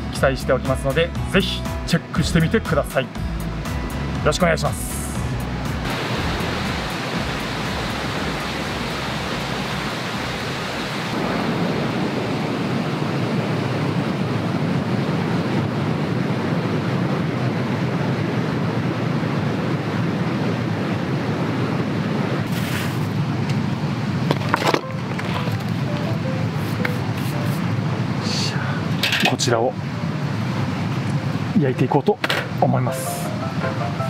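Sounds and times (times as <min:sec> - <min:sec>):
outdoor rushing noise: 0:05.2 - 0:28.3.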